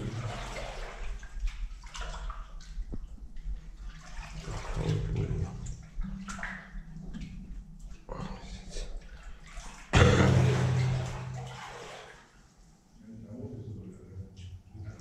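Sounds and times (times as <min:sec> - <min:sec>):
water splashing as someone wades: 0:00.0 - 0:07.5, 0:09.0 - 0:12.5.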